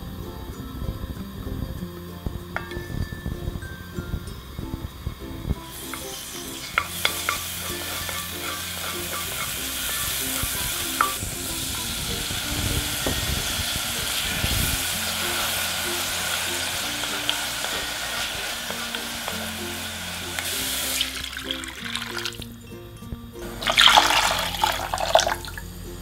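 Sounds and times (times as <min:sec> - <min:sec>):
background music: 0:00.0 - 0:26.0
meat sizzling in a pot: 0:04.4 - 0:22.6, 0:23.5 - 0:25.8
water poured onto hot pan: 0:05.7 - 0:22.4, 0:23.6 - 0:25.6.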